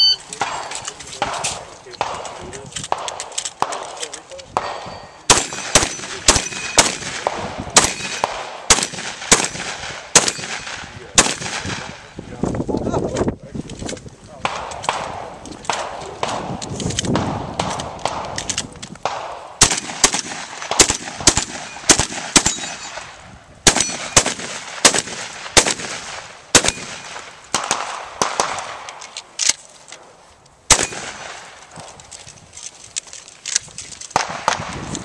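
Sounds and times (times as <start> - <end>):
shotgun shots: 0.2 - 12.1, 14.4 - 29.0, 30.7 - 31.9, 34.1 - 35.0.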